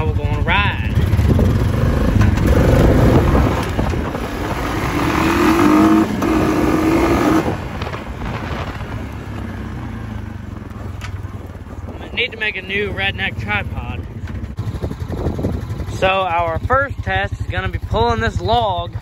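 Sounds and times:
quad bike engine accelerating: 0.0s - 19.0s.

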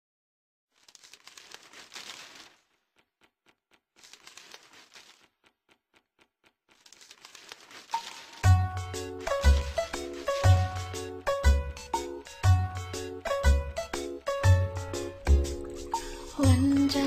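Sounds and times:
rustling noise swells: 9.1s - 11.1s.

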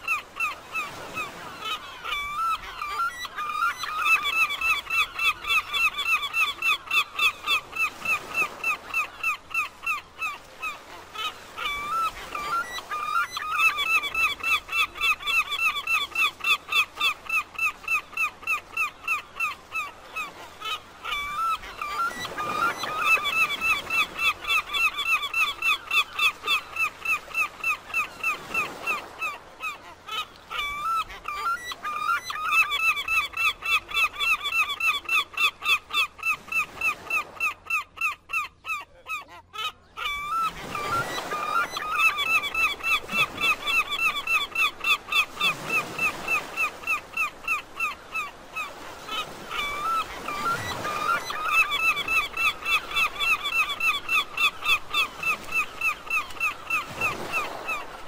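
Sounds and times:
gulls calling: 0.0s - 58.0s.

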